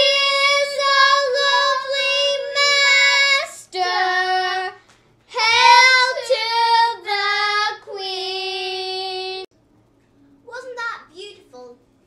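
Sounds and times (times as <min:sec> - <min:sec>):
child singing: 0:00.0 - 0:09.5.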